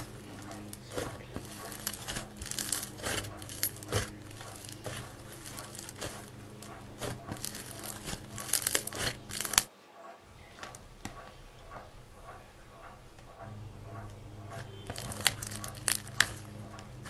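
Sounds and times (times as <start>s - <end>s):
slime crackling and tearing: 0.0s - 9.7s, 14.9s - 17.0s.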